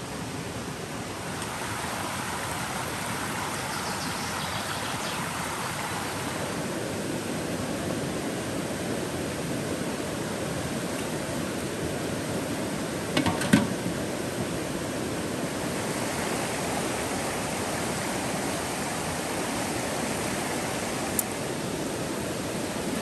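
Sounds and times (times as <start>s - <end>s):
stream rushing over stones: 0.0s - 23.0s.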